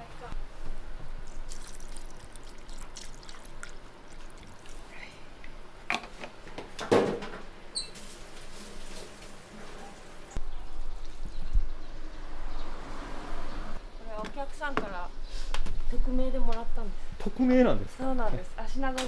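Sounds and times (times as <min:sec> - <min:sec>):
liquid trickling: 0:01.2 - 0:05.2.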